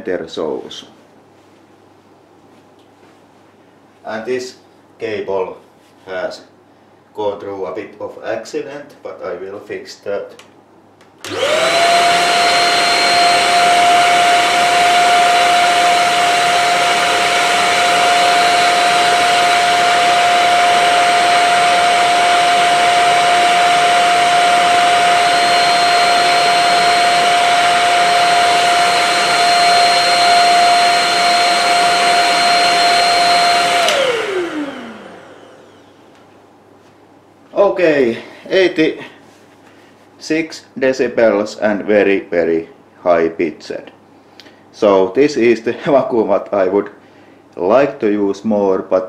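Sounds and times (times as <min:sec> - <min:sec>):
motor spinning down: 0:11.2 - 0:36.0
vacuum motor high-pitched whine: 0:11.2 - 0:36.2.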